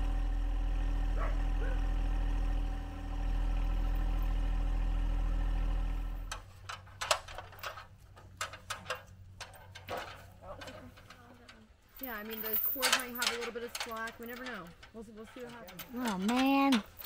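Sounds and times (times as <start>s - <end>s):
tractor diesel engine idling: 0.0s - 11.6s.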